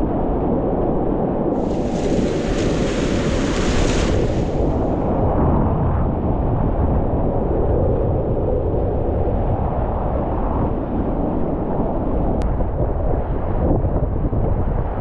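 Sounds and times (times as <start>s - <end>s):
river rapids rushing: 1.6s - 4.9s.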